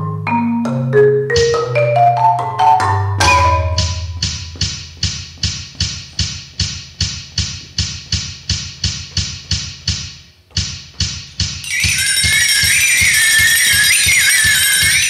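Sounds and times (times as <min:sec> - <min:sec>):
electronic percussive pulse: 0:02.6 - 0:07.2, 0:11.0 - 0:15.0.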